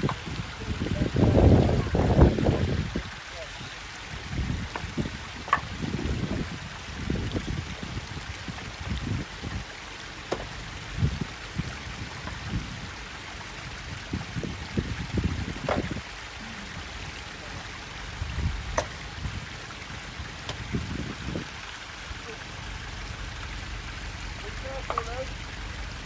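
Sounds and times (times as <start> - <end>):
low rumbles: 0.0 - 26.0
water running over stones: 0.0 - 26.0
stones knocking together: 4.7 - 5.8, 10.2 - 10.6, 15.6 - 16.0, 18.7 - 19.0, 20.4 - 20.7.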